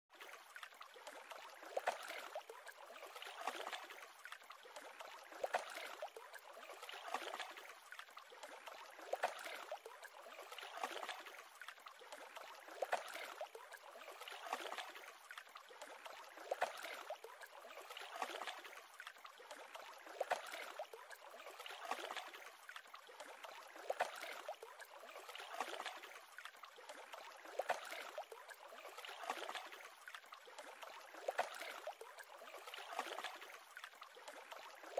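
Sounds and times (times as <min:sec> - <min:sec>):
small waves lapping: 0:00.1 - 0:34.9
water splashing: 0:00.1 - 0:34.9.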